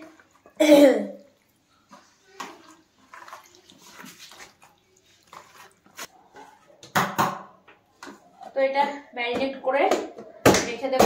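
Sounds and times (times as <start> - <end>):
wet squelches of kneading meat: 0.0 - 6.8.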